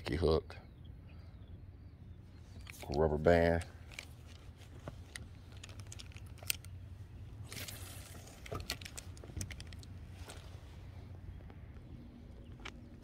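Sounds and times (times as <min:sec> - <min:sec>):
low steady hum: 0:00.0 - 0:13.0
brief rustle: 0:02.4 - 0:06.8
fishing tackle clicks: 0:02.5 - 0:10.5.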